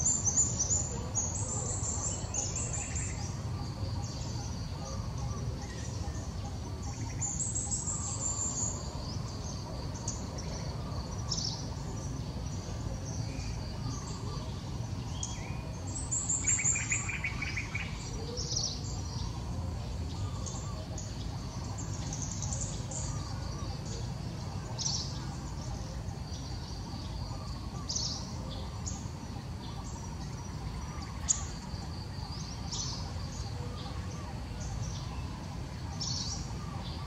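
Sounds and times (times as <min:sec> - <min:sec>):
low pulsed bird trill: 0:00.0 - 0:37.0
small birds chirping: 0:00.0 - 0:37.0.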